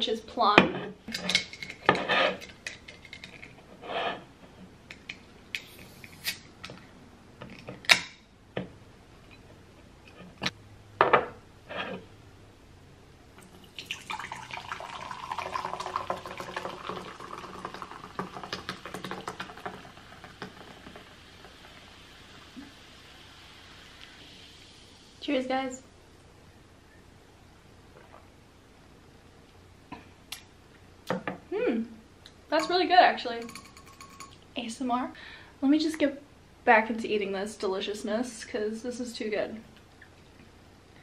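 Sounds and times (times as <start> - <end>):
soda pouring and fizzing: 13.4 - 25.2.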